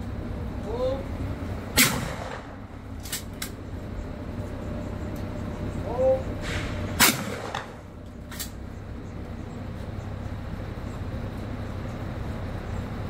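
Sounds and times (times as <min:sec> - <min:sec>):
steady low rumble: 0:00.0 - 0:13.0
shotgun shot: 0:01.8 - 0:02.6, 0:06.5 - 0:07.8.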